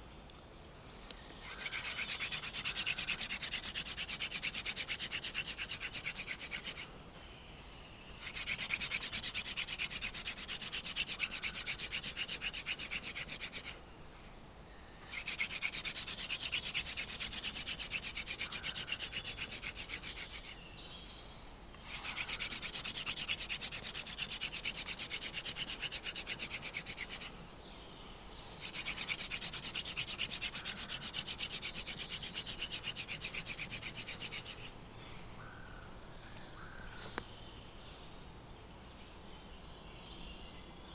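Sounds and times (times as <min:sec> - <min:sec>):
hand drill grinding into wood: 0:08.2 - 0:13.7, 0:15.1 - 0:20.6, 0:21.9 - 0:27.3, 0:28.6 - 0:34.6.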